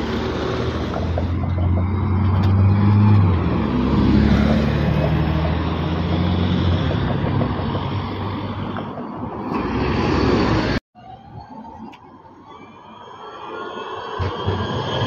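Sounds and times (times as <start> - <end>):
bus passing close by: 0.0 - 11.2
cars in street traffic: 0.0 - 15.0.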